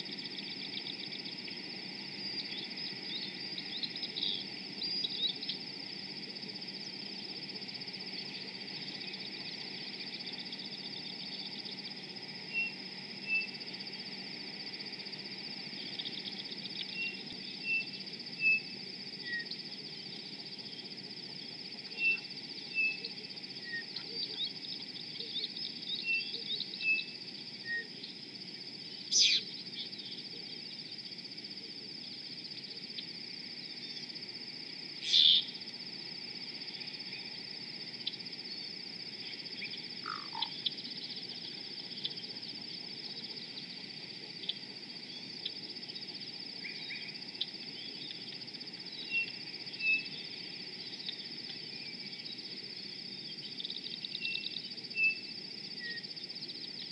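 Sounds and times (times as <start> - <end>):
steady high-pitched hum: 0.0 - 56.9
bird chirps and whistles: 35.1 - 35.5.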